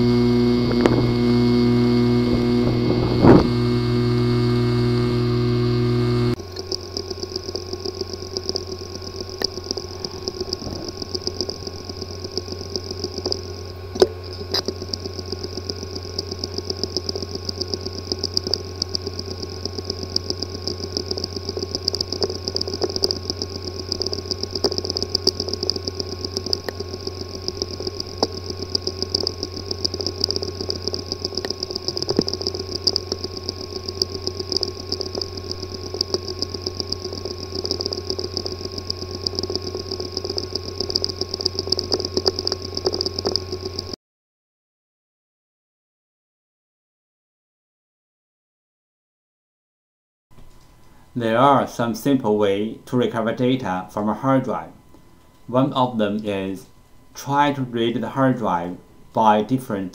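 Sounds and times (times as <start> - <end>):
hard drive clicking and ticking: 0.0 - 44.0
hard drive whirring hum: 0.0 - 44.0, 50.4 - 59.9.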